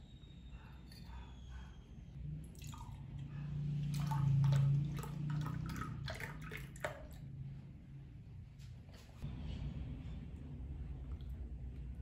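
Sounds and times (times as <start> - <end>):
milk pouring into a glass: 2.5 - 3.0, 3.8 - 7.3
small splashes: 3.7 - 7.4.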